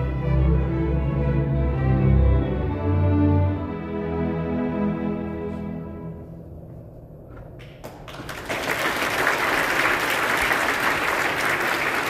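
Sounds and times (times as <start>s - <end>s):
scattered claps: 7.6s - 12.0s
audience applause: 7.8s - 12.0s.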